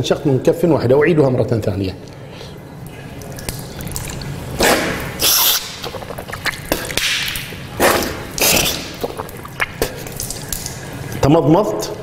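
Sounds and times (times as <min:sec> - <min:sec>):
water splashing: 0:02.9 - 0:11.3
person sniffing and blowing water: 0:03.8 - 0:11.2.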